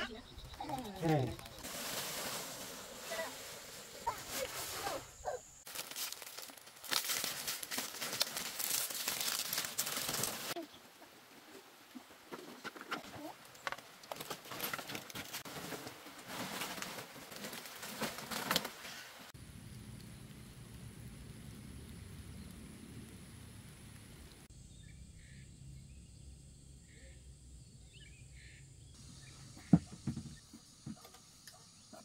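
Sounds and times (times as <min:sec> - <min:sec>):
dry palm fronds rustling: 0:00.0 - 0:19.3.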